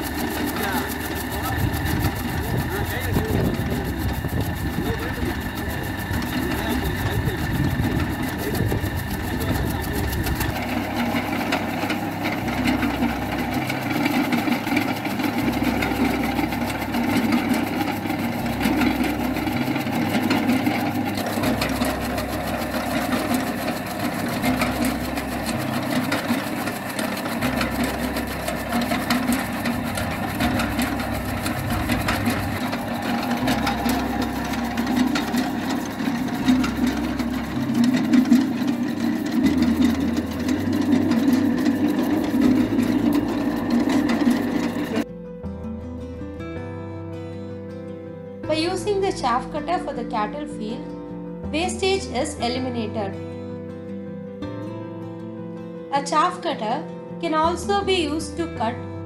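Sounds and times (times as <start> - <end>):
chaff cutter chopping grass: 0.0 - 45.1.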